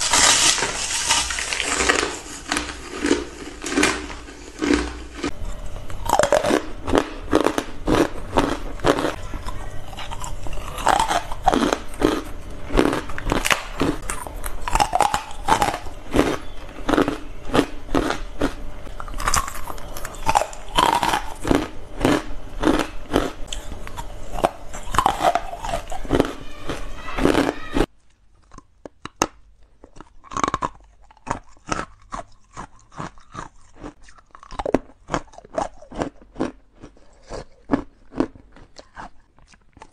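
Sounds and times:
ice being chewed: 0:00.0 - 0:39.9.

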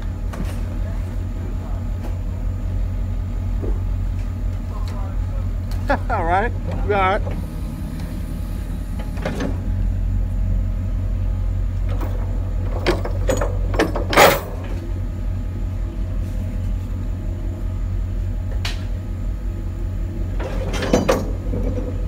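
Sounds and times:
vehicle engine idling: 0:00.0 - 0:20.5
sharp knocks and clatter: 0:11.9 - 0:14.8, 0:20.4 - 0:22.0.

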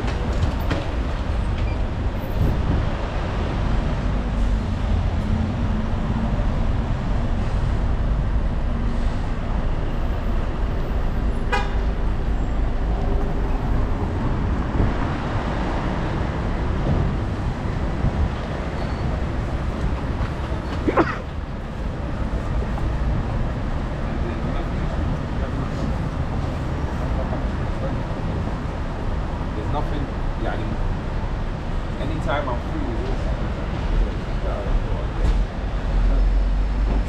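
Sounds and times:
city road traffic rumble: 0:00.0 - 0:37.0
vehicle horn toot: 0:11.4 - 0:11.9.

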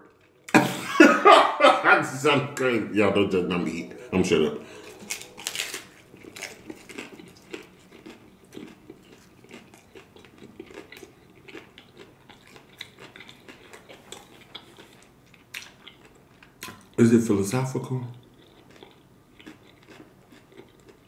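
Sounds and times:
chewing crunchy taco: 0:00.0 - 0:00.6, 0:04.4 - 0:17.0, 0:17.8 - 0:21.0.

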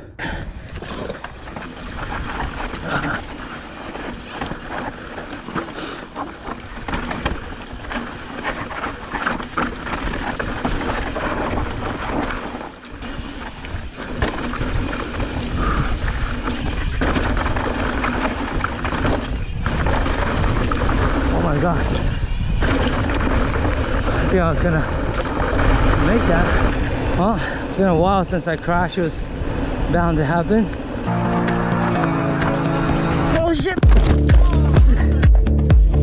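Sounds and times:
bike rattling over bumps: 0:00.4 - 0:26.9.

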